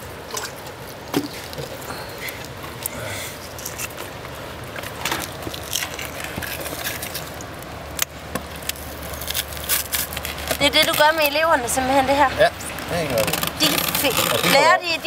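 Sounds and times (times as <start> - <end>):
wet skin pulling off fish: 0.3 - 11.4.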